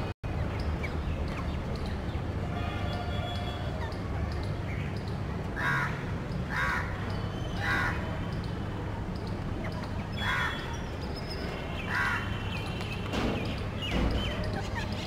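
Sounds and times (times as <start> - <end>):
small birds chirping: 0.3 - 15.0
crow cawing: 5.6 - 6.9, 10.2 - 10.6, 11.9 - 12.3.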